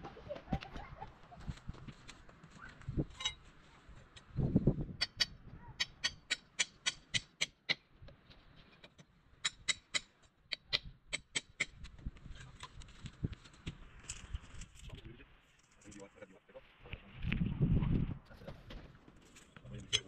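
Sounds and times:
hammer tapping on metal: 5.0s - 7.9s, 8.9s - 11.8s.

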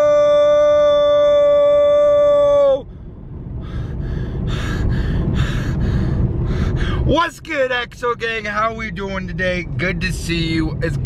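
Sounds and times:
young man shouting a long note: 0.0s - 2.8s
car cabin road rumble: 0.0s - 11.0s.

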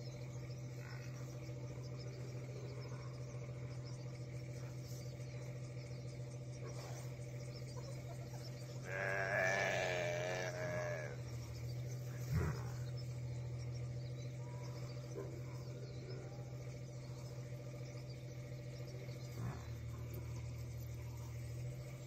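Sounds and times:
insects chirping: 0.0s - 22.0s
steady low hum: 0.0s - 22.0s
animal bleat: 8.8s - 11.2s.

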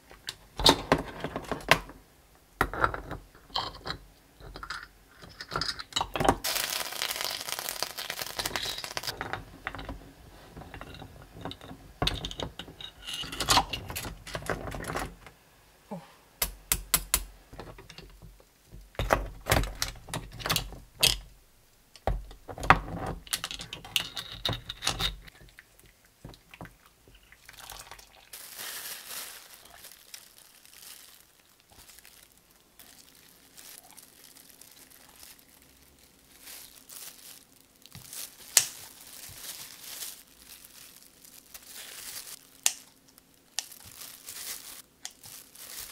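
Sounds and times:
boiling water bubbling: 25.3s - 28.4s.

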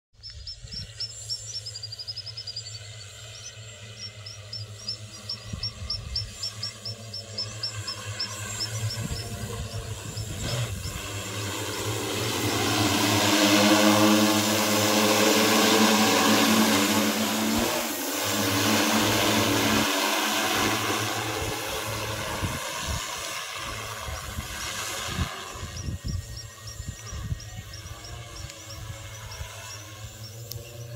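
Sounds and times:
drone rotor hum: 0.3s - 30.9s.

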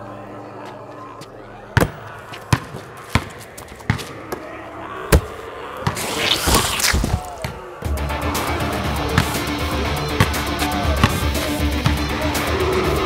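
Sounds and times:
basketball bouncing on hard court: 1.8s - 4.1s, 11.0s - 12.0s
rush of noise: 5.4s - 7.8s.

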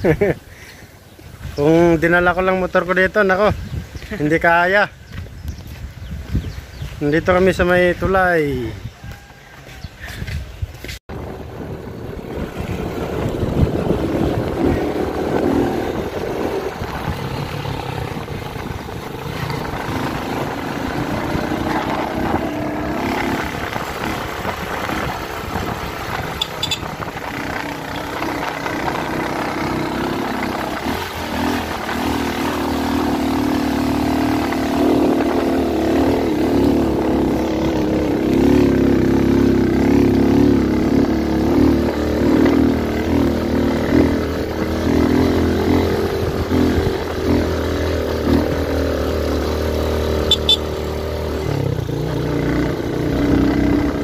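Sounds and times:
motorcycle engine running: 11.1s - 54.0s.

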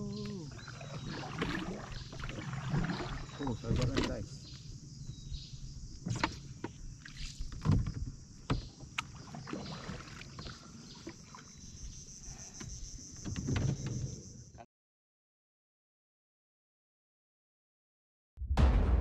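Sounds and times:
insects chorus: 0.0s - 14.7s
paddle splashing in water: 0.1s - 4.4s, 6.0s - 12.0s.

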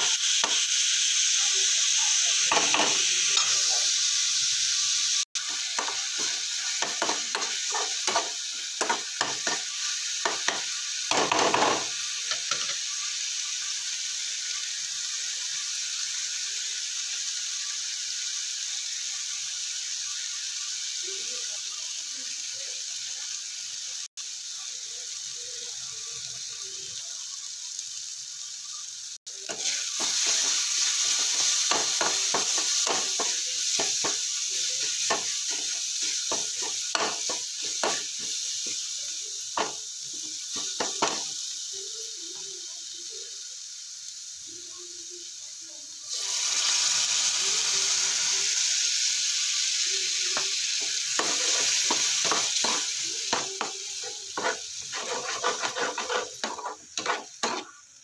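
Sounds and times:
masala sizzling in oil: 0.0s - 58.0s
spoon scraping and clinking on pan: 51.2s - 57.8s.

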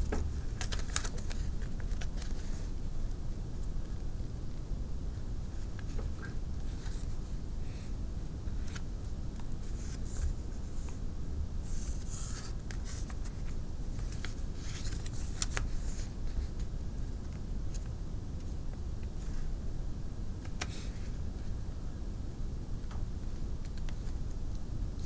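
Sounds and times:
low background rumble: 0.0s - 25.0s
paper rustling and crinkling: 0.1s - 2.7s, 5.5s - 7.9s, 11.6s - 17.9s.

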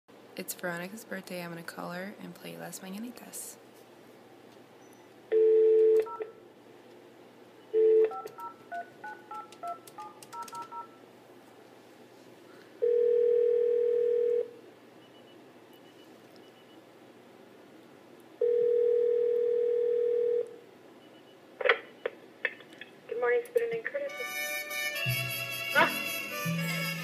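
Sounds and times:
keypad tones: 4.9s - 6.4s, 7.8s - 11.0s
telephone ringback tone: 7.7s - 9.5s, 12.8s - 14.5s, 18.4s - 20.5s
telephone dial tone: 7.8s - 10.9s, 12.8s - 14.5s, 18.4s - 20.5s.

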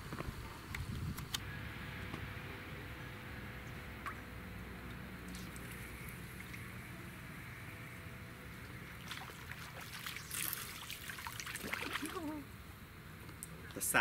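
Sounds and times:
fish splashing in water: 8.8s - 12.4s.

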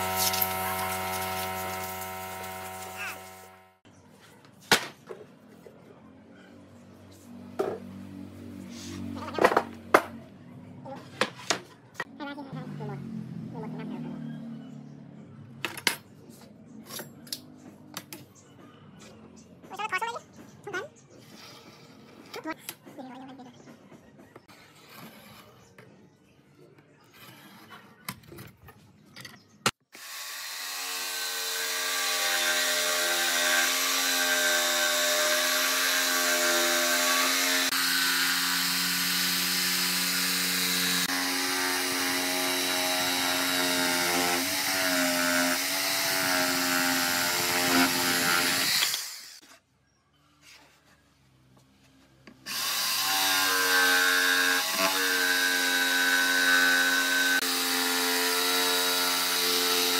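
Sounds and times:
jigsaw cutting wood: 0.0s - 3.8s, 29.9s - 49.4s, 52.4s - 59.9s.

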